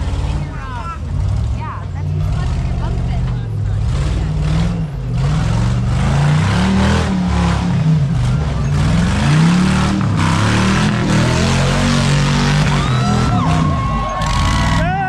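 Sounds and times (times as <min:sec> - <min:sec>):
buggy engine revving: 0:00.0 - 0:15.0.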